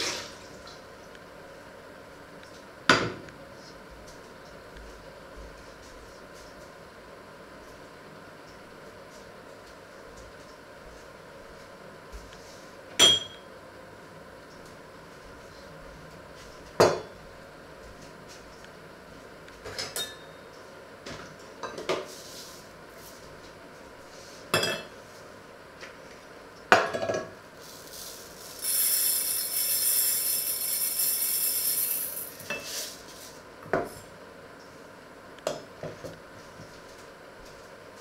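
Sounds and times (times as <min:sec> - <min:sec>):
steady high hiss: 0:27.6 - 0:33.1.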